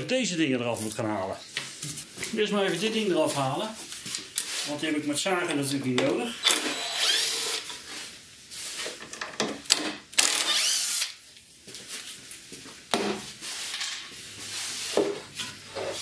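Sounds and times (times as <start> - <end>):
cordless drill motor spinning: 6.4 - 7.8, 10.2 - 11.2
wood scraping and rubbing: 14.5 - 16.0.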